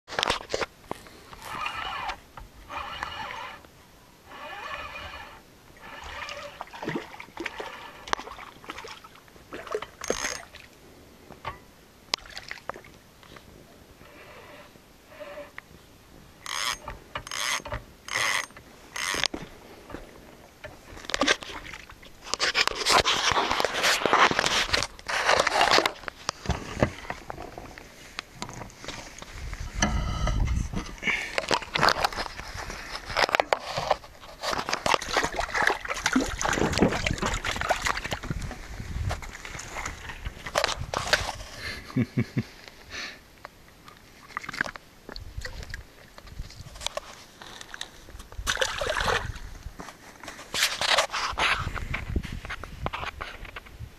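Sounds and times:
rod and reel scraping and clicking: 0.1s - 3.7s, 4.3s - 8.8s, 9.8s - 10.5s, 14.0s - 15.7s, 16.4s - 20.0s, 20.6s - 41.8s, 46.2s - 48.3s, 49.8s - 53.7s
fishing reel gears whirring: 1.3s - 3.7s, 4.3s - 6.6s, 10.0s - 10.4s, 16.4s - 19.3s.

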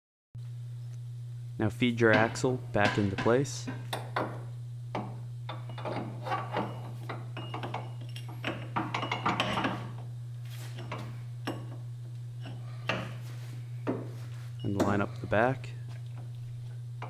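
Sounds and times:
steady low hum: 0.4s - 17.0s
metal clinks and knocks: 5.0s - 10.0s.

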